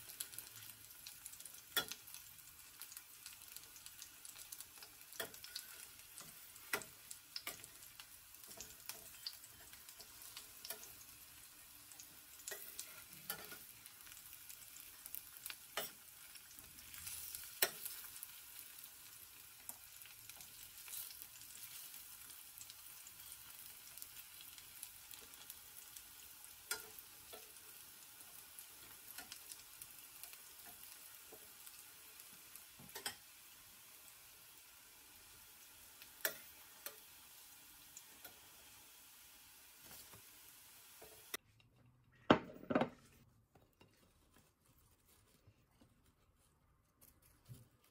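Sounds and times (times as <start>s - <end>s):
oil sizzling in a frying pan: 0.0s - 41.4s
metal spatula against pan: 1.3s - 2.2s, 4.3s - 14.2s, 15.1s - 16.4s, 17.0s - 18.4s, 26.6s - 29.6s, 32.8s - 33.3s, 36.2s - 37.1s.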